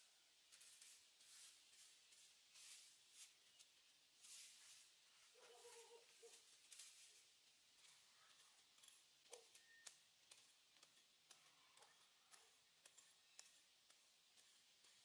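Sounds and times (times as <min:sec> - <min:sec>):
background hiss: 0:00.0 - 0:08.6
hand tool digging into soil: 0:05.6 - 0:15.0.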